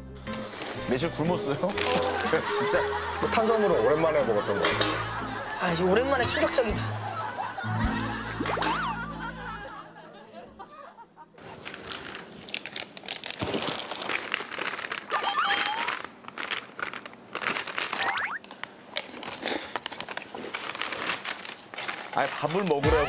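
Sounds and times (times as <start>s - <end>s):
plastic bag crinkling: 1.6s - 3.7s, 11.4s - 23.0s
cereal crunching: 11.6s - 22.8s.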